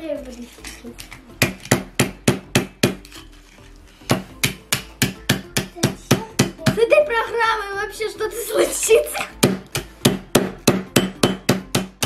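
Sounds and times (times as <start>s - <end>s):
hammer knocking on phone parts: 1.4s - 3.0s, 4.1s - 6.8s, 9.4s - 12.0s.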